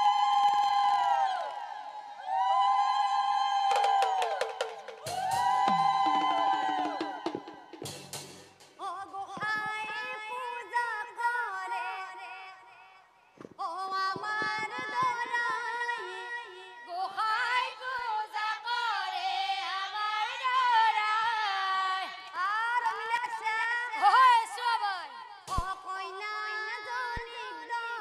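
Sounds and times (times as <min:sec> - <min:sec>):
drum strikes: 0:03.7 - 0:08.9
woman singing devotional song: 0:08.8 - 0:28.0.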